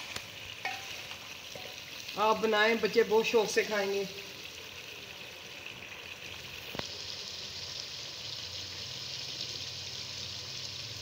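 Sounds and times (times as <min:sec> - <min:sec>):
food sizzling in a pot: 0:00.0 - 0:11.0.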